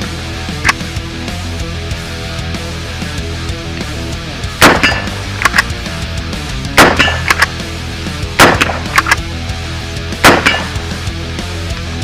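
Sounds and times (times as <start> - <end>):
rock music with electric guitar: 0.0 - 12.0
rifle bolt metallic clicks: 0.6 - 0.9, 4.6 - 5.8, 6.8 - 7.6, 8.4 - 9.3
rifle shots: 4.6 - 5.7, 6.8 - 7.6, 8.4 - 9.2, 10.2 - 10.9.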